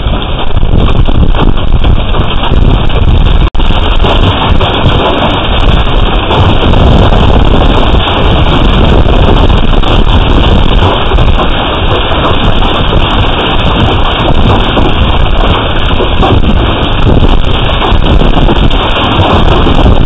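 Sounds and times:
hail and heavy rain pelting: 0.0s - 20.0s
wind buffeting microphone: 0.0s - 20.0s.

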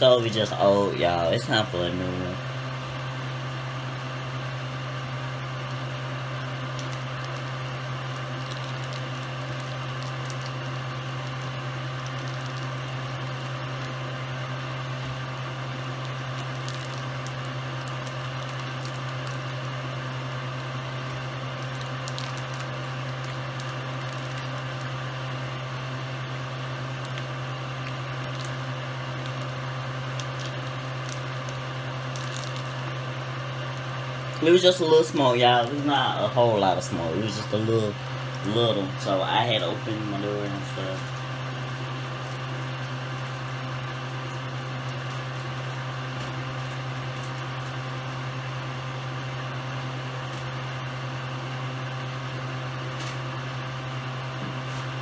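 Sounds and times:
kitchen appliance humming: 0.0s - 55.0s
plastic wrap crinkling: 6.7s - 13.9s, 15.9s - 19.7s, 21.0s - 25.2s, 26.9s - 32.9s, 40.5s - 47.9s.

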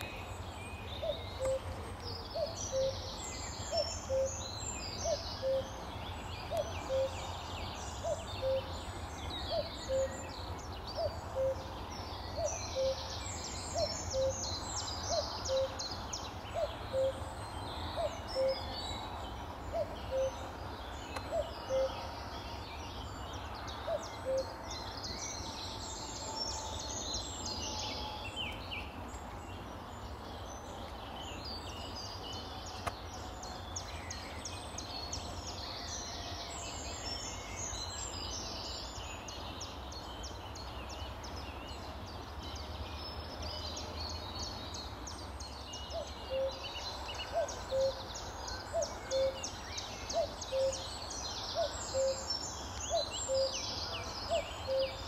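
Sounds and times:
songbirds twittering: 0.0s - 55.0s
cuckoo calling: 1.0s - 5.8s, 6.5s - 7.3s, 8.0s - 8.8s, 9.5s - 10.3s, 11.0s - 11.8s, 12.4s - 13.1s, 13.8s - 14.4s, 16.5s - 17.3s, 18.0s - 18.8s, 19.7s - 20.5s, 21.2s - 22.2s, 23.9s - 24.6s, 46.0s - 46.6s, 47.2s - 48.0s, 48.6s - 49.5s, 50.1s - 50.9s, 54.3s - 55.0s.

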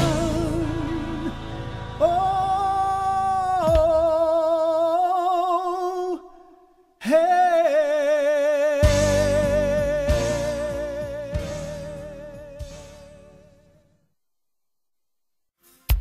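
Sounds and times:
backing music: 0.0s - 5.2s, 8.8s - 13.8s.

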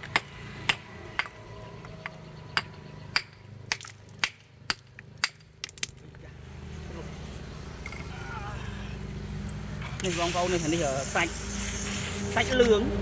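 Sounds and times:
knife striking stone: 2.6s - 5.9s.

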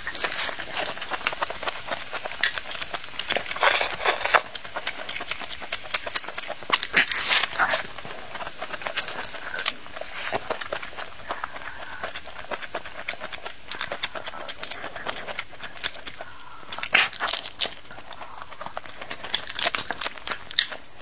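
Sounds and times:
crunchy chewing: 0.0s - 21.0s
wet mouth clicks and smacks: 4.4s - 7.8s.

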